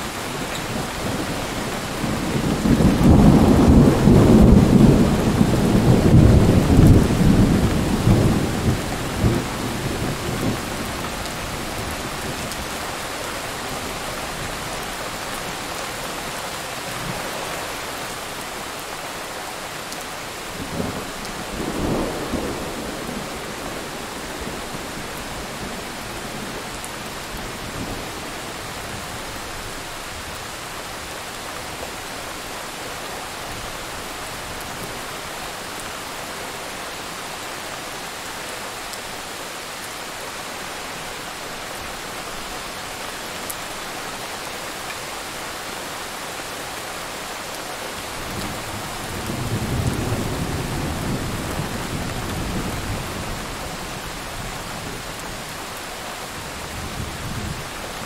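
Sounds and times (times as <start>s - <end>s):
thunder rumbling: 0.0s - 12.8s
steady rain: 0.0s - 58.0s.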